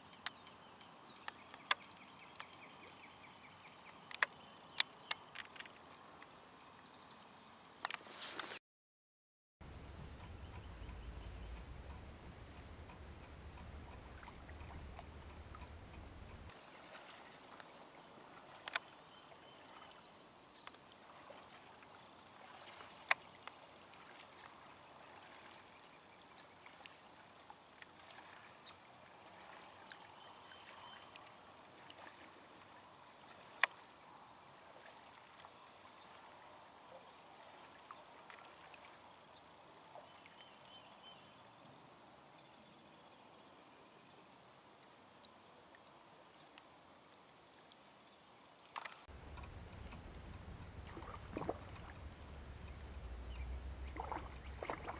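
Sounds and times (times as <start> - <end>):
paddle dipping and dripping: 0.0 - 8.6, 9.6 - 54.9
low rumble: 9.6 - 16.5, 49.1 - 54.9.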